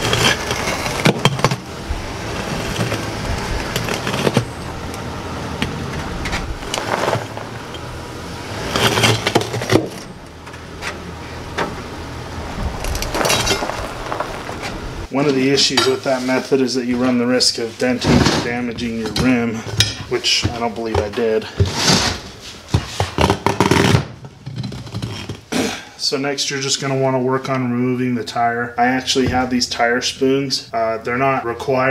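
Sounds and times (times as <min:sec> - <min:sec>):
truck engine running: 0:00.0 - 0:15.1
gravel crunching: 0:00.0 - 0:25.8.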